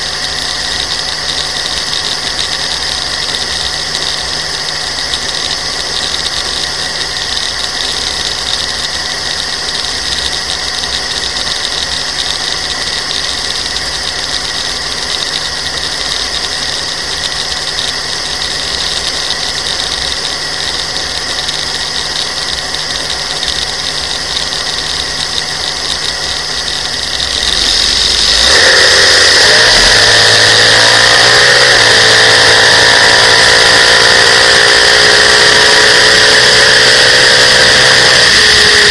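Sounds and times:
dragster engine revving: 9.8 - 38.9.

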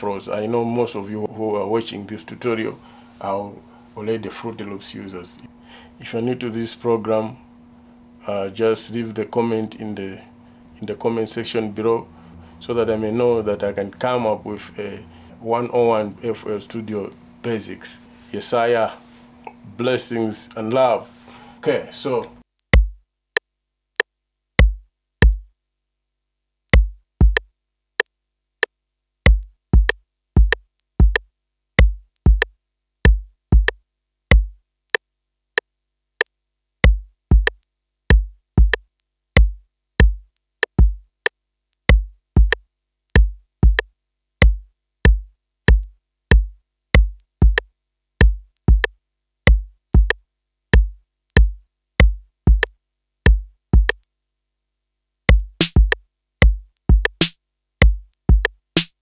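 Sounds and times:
electronic kick drum loop: 22.7 - 23.0, 24.6 - 25.5, 26.8 - 27.5, 29.3 - 31.2, 31.8 - 34.6, 36.8 - 38.8, 39.4 - 41.0, 41.9 - 42.6, 43.2 - 48.9, 49.5 - 52.7, 53.3 - 54.0, 55.3 - 59.0.

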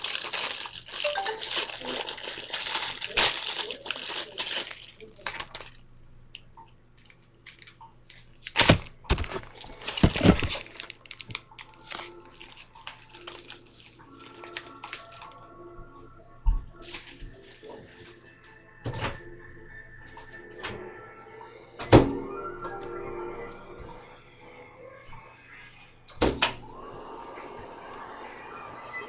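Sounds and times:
packaging crinkling: 0.0 - 5.8, 7.0 - 15.5, 16.8 - 18.3.

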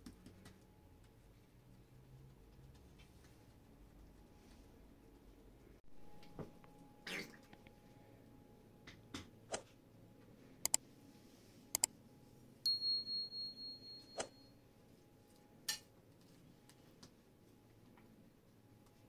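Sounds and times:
thin high tone: 12.7 - 14.7.

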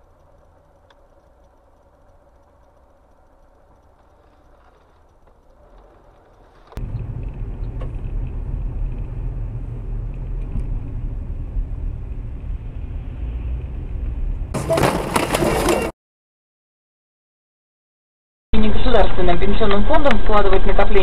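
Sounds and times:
faint clicks: 0.0 - 6.8
car driving rumble: 0.0 - 15.9.

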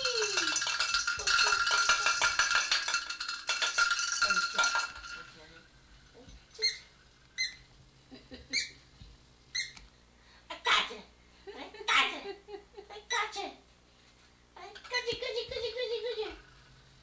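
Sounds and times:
bell toy jingling: 0.0 - 5.7
short high squeaks: 9.5 - 9.8.

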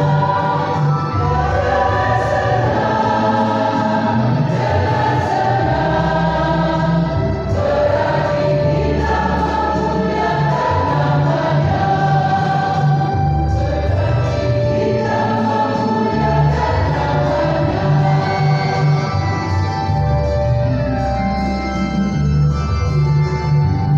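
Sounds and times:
choir singing gospel: 0.0 - 21.2
instrumental backing with bass: 0.0 - 23.9.

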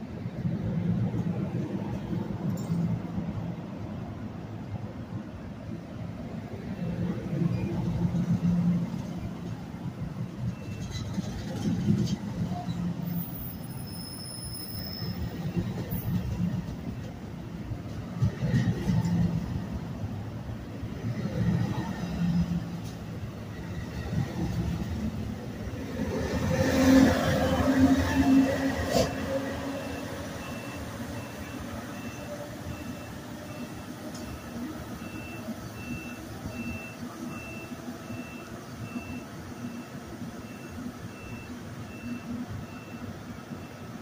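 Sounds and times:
train cars rumbling past: 0.0 - 44.0.

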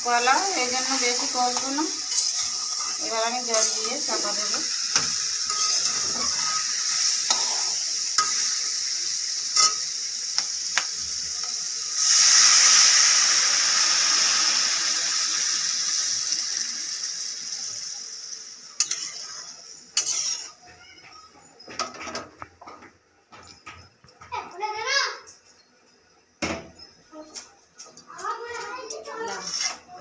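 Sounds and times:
water hissing in hot pan: 0.0 - 20.6
food sizzling in hot oil: 0.0 - 20.7, 28.3 - 30.0
spatula scraping a pan: 0.5 - 8.6, 18.8 - 20.6, 28.8 - 30.0.

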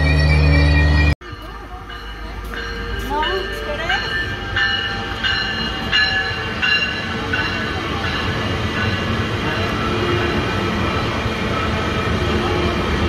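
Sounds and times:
bell ringing: 0.0 - 9.8
train wheels rumbling on rails: 0.0 - 13.0.

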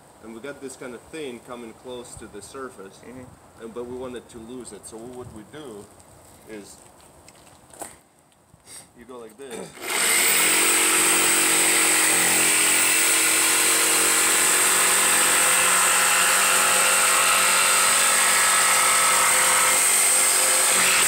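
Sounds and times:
jigsaw cutting plywood: 9.7 - 21.0.

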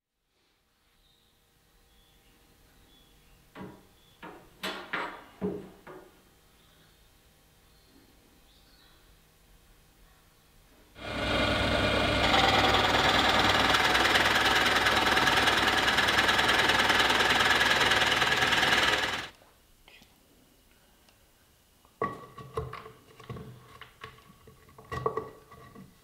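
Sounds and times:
drill press boring into wood: 11.0 - 19.3.

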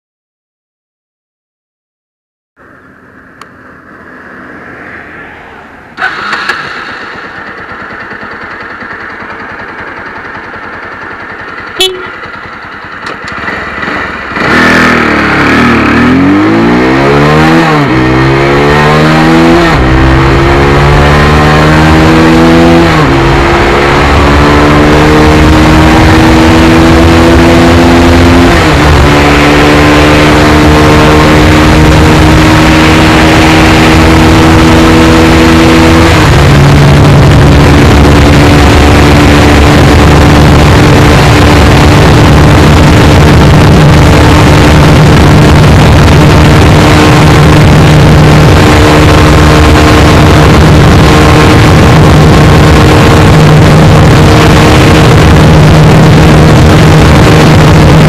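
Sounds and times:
motorcycle engine accelerating: 2.7 - 58.0
wind rush: 3.6 - 6.8, 31.2 - 58.0.

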